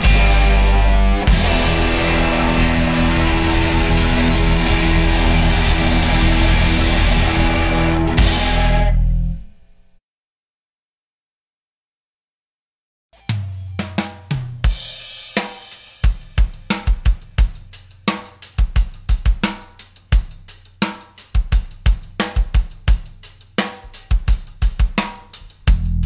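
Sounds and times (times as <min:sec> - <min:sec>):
drum kit beat: 0:00.0 - 0:08.9, 0:13.2 - 0:26.0
low bass line: 0:00.0 - 0:09.4, 0:25.7 - 0:26.0.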